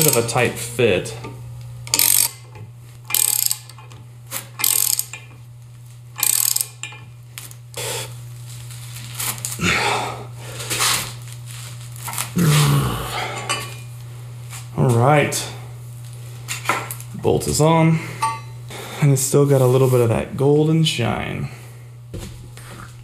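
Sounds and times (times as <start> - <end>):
hand ratchet clicking: 0.0 - 0.3, 1.8 - 5.4, 6.2 - 7.1
wrench scraping and clanking: 0.0 - 0.4, 1.9 - 4.0, 4.6 - 5.4, 6.2 - 7.1
steady low hum: 0.0 - 23.0.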